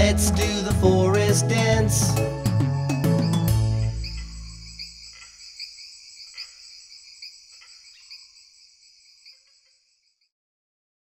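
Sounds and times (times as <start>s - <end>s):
crickets chirping: 2.0s - 10.3s
faint lower insect calls: 2.1s - 10.3s.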